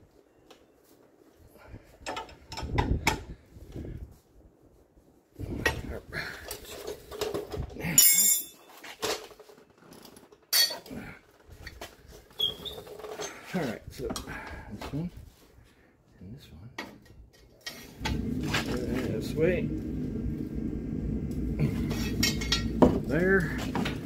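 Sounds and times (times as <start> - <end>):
tools rattling clatter: 6.5 - 14.3, 21.6 - 24.0
metal tools clinking: 8.0 - 9.4, 10.0 - 10.9, 21.8 - 24.0.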